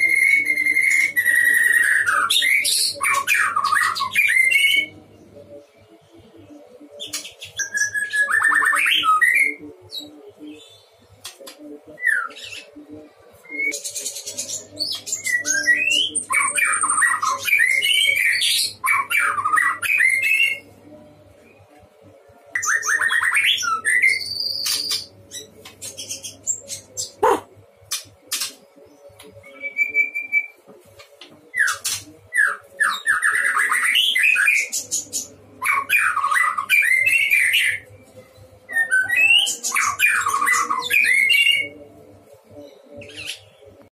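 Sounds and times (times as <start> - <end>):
bird singing whistles and trills: 0.0 - 5.0, 7.0 - 10.0, 13.4 - 20.7, 22.6 - 27.4, 29.2 - 30.6, 31.5 - 37.9, 38.7 - 41.8.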